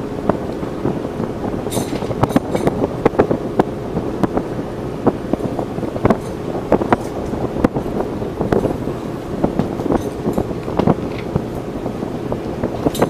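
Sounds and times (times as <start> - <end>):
low rumble of machinery: 0.0 - 13.0
wind: 0.0 - 13.0
clanks of gear being handled: 1.7 - 2.7.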